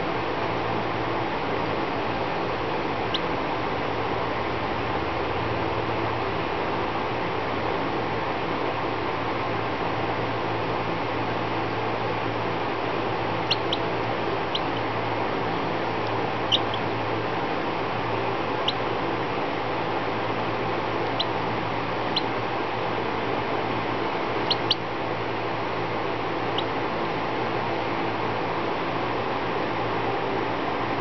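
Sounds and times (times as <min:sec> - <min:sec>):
background hiss and hum: 0:00.0 - 0:31.0
baby chick peeping: 0:02.8 - 0:03.6, 0:13.3 - 0:17.1, 0:18.4 - 0:19.0, 0:21.0 - 0:22.4, 0:24.3 - 0:24.9, 0:26.4 - 0:26.8.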